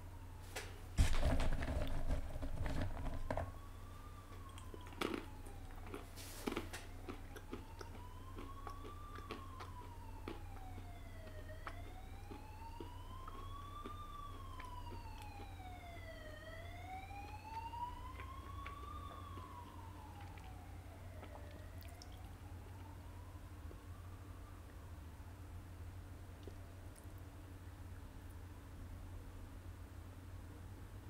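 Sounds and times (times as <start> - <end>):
steady low hum: 0.0 - 31.0
siren wailing: 1.2 - 25.4.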